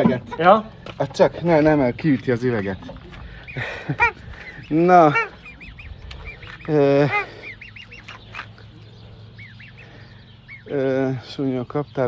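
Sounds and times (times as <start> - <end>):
swan honking: 3.1 - 10.7
cygnet peeping: 3.4 - 12.0.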